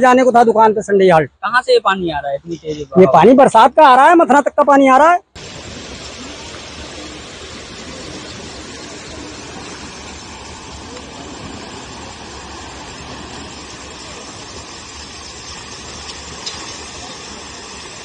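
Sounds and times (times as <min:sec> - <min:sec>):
floodwater rushing: 0:05.4 - 0:18.0
faint voices: 0:05.9 - 0:15.3.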